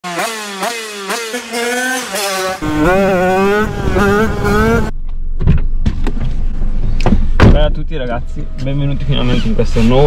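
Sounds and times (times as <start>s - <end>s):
two-stroke motorcycle revving: 0.0s - 4.9s.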